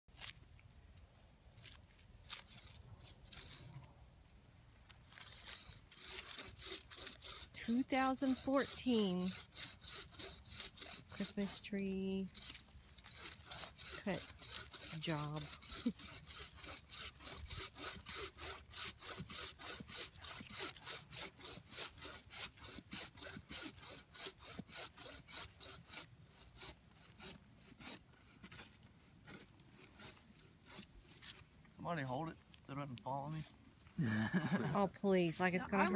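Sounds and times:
hand saw rasping through wood: 0:02.3 - 0:03.8, 0:05.1 - 0:31.4.

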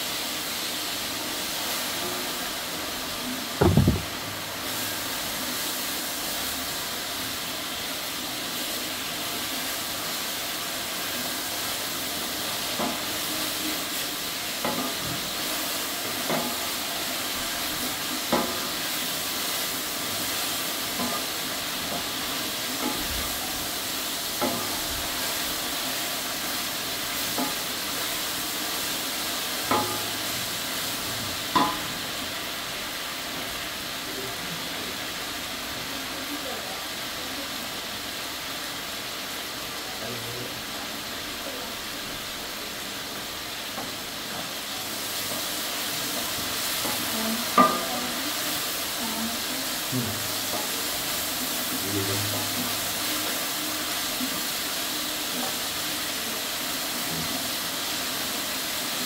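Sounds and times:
onions sizzling in oil: 0:00.0 - 0:59.0
wooden spatula knocking a pot: 0:03.6 - 0:04.1.

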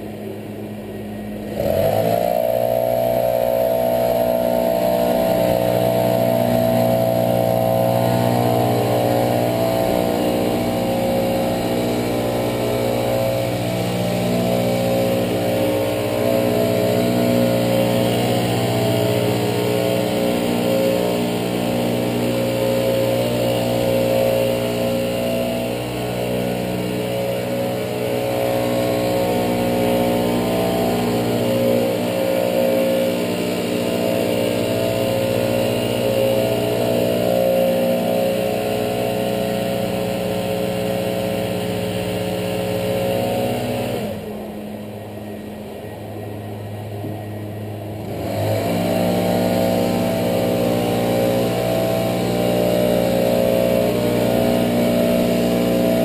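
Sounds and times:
leaf blower engine running: 0:00.0 - 0:56.0.

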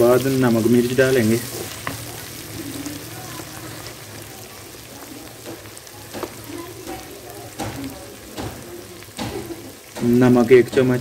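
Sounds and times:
food sizzling in ghee: 0:00.0 - 0:11.0.

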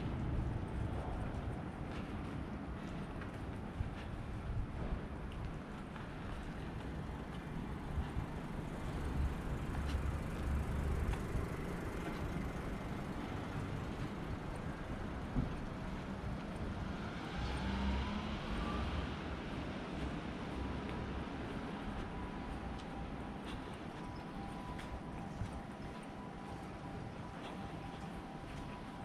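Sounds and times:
street traffic passing: 0:00.0 - 0:29.0
accelerating vehicle whine: 0:06.7 - 0:29.0.

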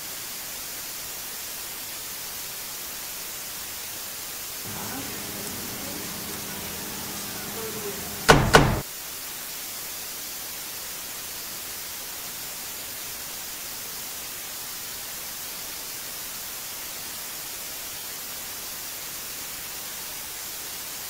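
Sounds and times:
knocks on a door: 0:04.7 - 0:08.8
static hiss: 0:04.7 - 0:08.8.

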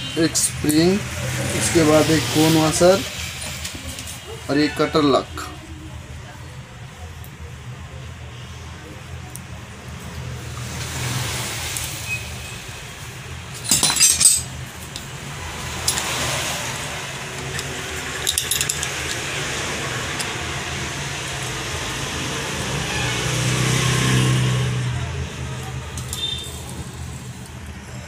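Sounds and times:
metal clinking: 0:13.5 - 0:20.6, 0:25.9 - 0:27.6.

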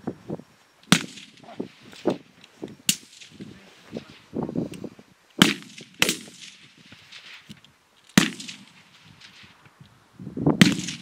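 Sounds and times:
rifle shots with echo: 0:00.9 - 0:01.6, 0:05.4 - 0:07.4, 0:08.2 - 0:09.5, 0:10.6 - 0:11.0.

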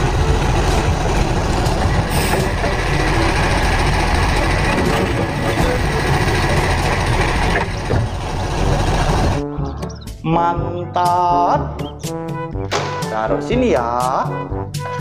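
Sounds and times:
truck engine rumbling: 0:00.0 - 0:10.3.

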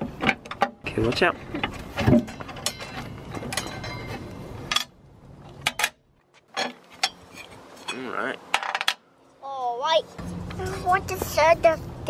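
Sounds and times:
metal clinks and scraping: 0:00.5 - 0:05.0, 0:05.6 - 0:09.0.

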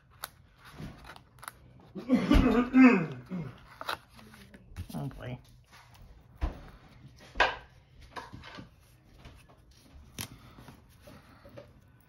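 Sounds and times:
paper pages rustling: 0:00.0 - 0:02.0, 0:03.5 - 0:07.3, 0:08.6 - 0:11.9.

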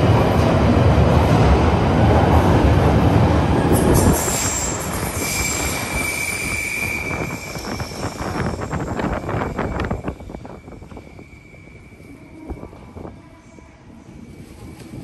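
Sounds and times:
train rumbling: 0:00.0 - 0:15.0
high wheel squeal: 0:04.0 - 0:10.1.

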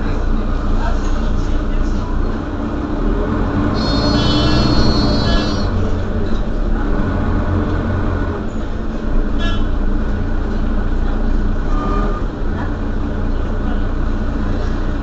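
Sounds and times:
bus engine running: 0:00.0 - 0:15.0
short high-pitched tone: 0:03.8 - 0:05.8.

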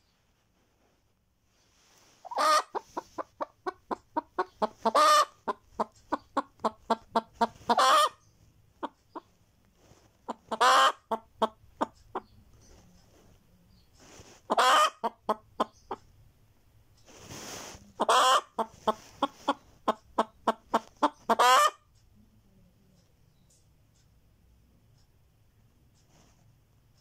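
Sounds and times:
soft breathy hiss: 0:00.0 - 0:03.2, 0:17.0 - 0:18.0
hen clucking and squawking: 0:02.2 - 0:09.4, 0:10.1 - 0:12.9, 0:14.3 - 0:16.2, 0:17.3 - 0:22.0.

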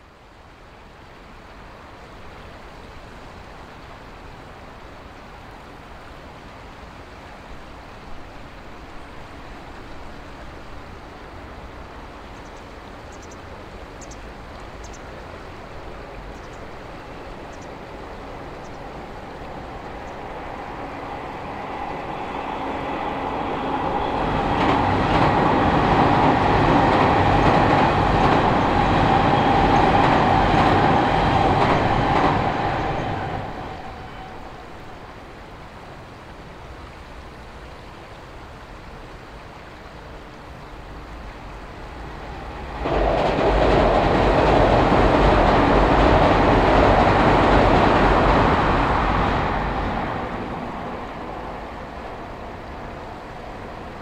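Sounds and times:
river rushing: 0:00.0 - 0:54.0
electric train whine: 0:07.6 - 0:36.6, 0:40.6 - 0:54.0.

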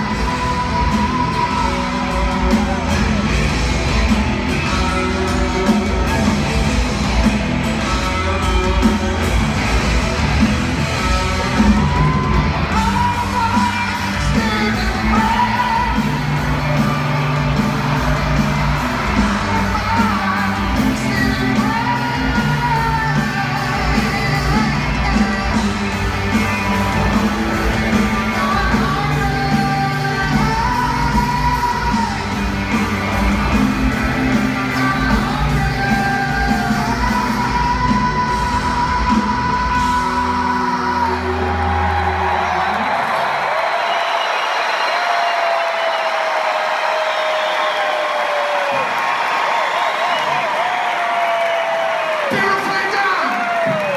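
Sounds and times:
man singing: 0:00.0 - 0:03.3, 0:12.0 - 0:17.3, 0:19.2 - 0:26.0, 0:27.8 - 0:32.3, 0:34.4 - 0:41.8
live rock band: 0:00.0 - 0:53.9.

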